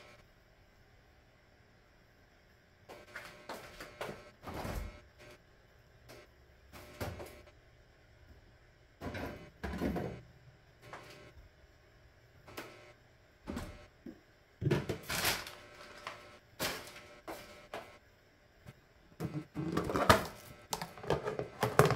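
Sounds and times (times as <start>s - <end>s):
plastic bags rustling: 14.9s - 17.1s.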